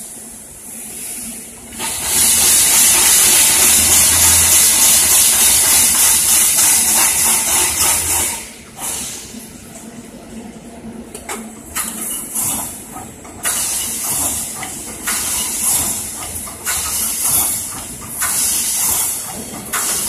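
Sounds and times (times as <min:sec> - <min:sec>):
compressed air hissing: 0:00.6 - 0:09.4, 0:13.4 - 0:20.0.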